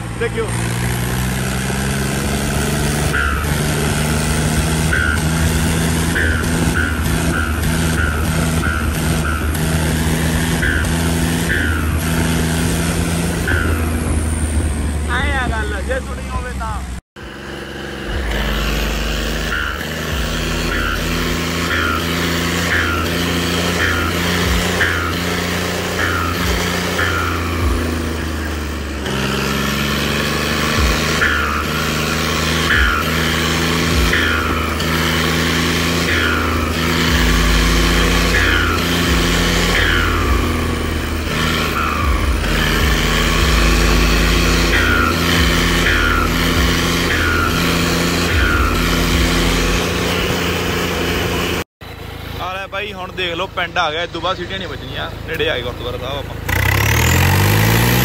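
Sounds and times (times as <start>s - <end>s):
tractor diesel engine revving: 0.0s - 58.0s.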